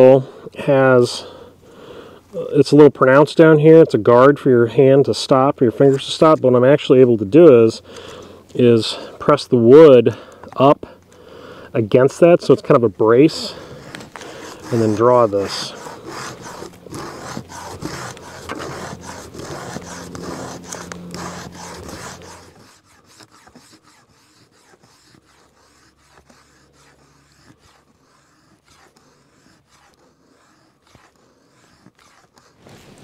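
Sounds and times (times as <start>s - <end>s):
knife spine scraping a stick: 5.0s - 10.8s, 11.9s - 33.0s.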